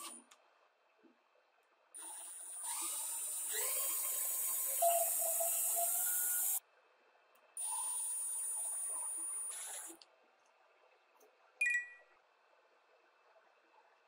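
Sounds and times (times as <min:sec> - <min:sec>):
power drill whining: 0:02.0 - 0:06.6.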